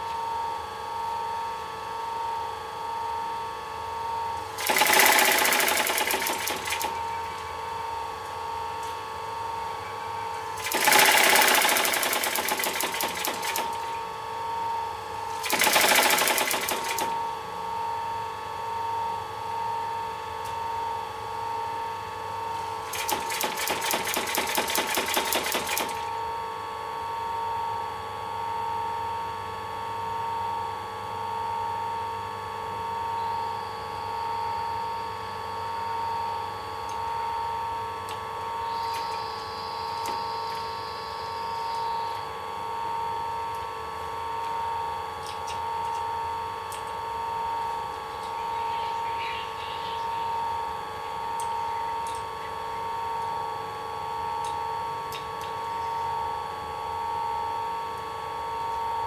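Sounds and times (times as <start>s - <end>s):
steady machine hum: 0.0s - 59.0s
sewing machine stitching: 4.6s - 7.0s, 10.6s - 13.9s, 15.4s - 17.1s, 22.9s - 26.1s.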